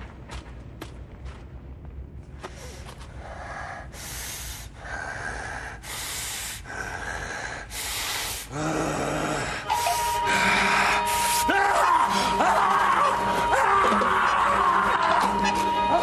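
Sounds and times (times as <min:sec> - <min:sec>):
person breathing heavily: 0:02.4 - 0:11.4
low voiced moan: 0:08.5 - 0:16.0.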